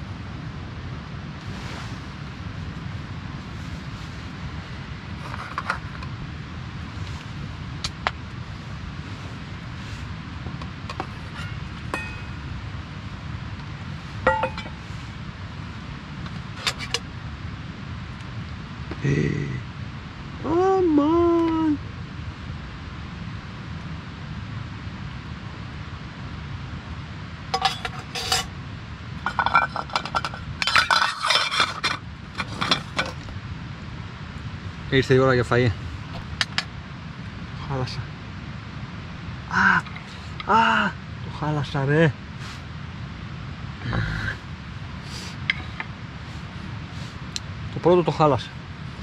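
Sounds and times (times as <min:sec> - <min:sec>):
pot lid clinking: 0:11.3 - 0:12.4, 0:14.3 - 0:14.8, 0:27.6 - 0:28.5, 0:29.3 - 0:33.2.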